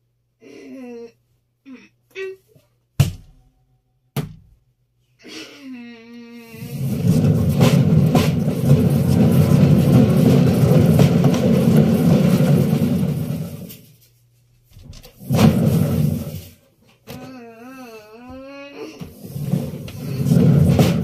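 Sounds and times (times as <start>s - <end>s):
washing machine drum rumbling: 6.6s - 13.8s, 14.9s - 16.5s, 19.1s - 21.0s.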